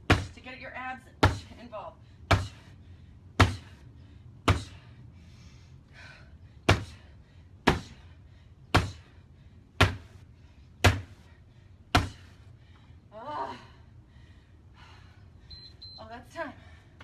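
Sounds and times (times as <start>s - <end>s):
punches thudding on padded target: 0.0s - 0.4s, 1.2s - 1.7s, 2.3s - 2.6s, 3.4s - 3.8s, 4.4s - 4.8s, 6.7s - 7.0s, 7.6s - 8.0s, 8.7s - 9.0s, 9.8s - 10.2s, 10.8s - 11.2s, 11.9s - 12.3s.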